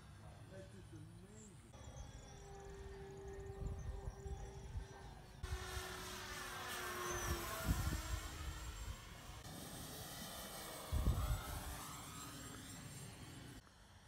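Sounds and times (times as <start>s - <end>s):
model plane motors whining: 0.8s - 14.0s
wind buffeting microphone: 6.9s - 9.2s, 10.8s - 11.8s.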